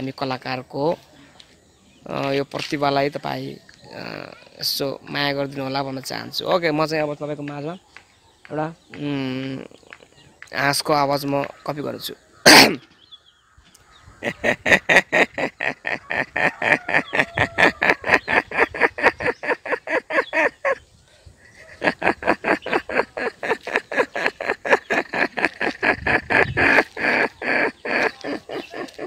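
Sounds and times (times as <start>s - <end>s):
man imitating duck quacks: 12.4s - 12.8s, 21.7s - 29.0s.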